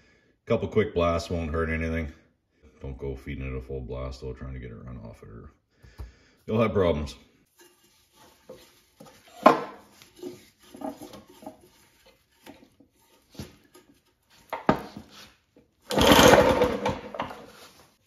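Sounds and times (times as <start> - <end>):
engine spun over by rope pull: 15.9 - 17.2.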